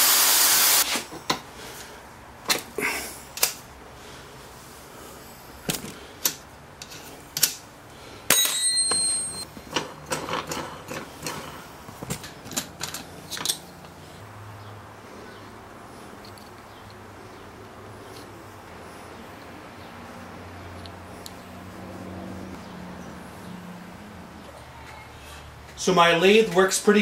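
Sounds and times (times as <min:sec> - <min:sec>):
clicks and knocks of wrench and wood: 0:08.4 - 0:14.0.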